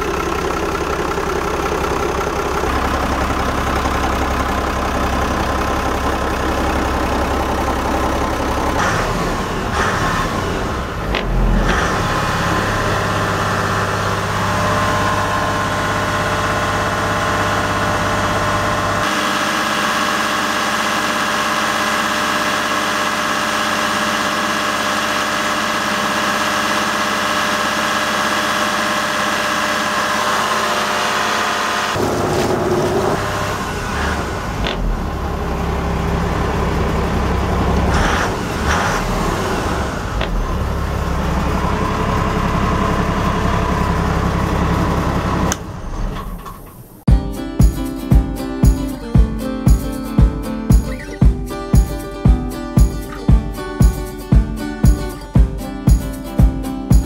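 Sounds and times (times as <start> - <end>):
boat engine running: 0.0 - 31.3.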